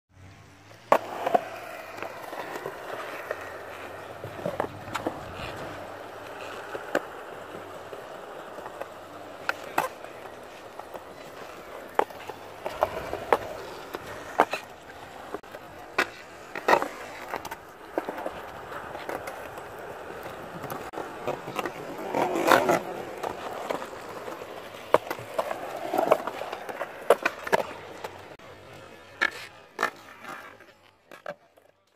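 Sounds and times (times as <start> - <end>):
skateboard wheels rolling on concrete: 0.1 - 31.9
skateboard wooden clacks: 0.8 - 28.4.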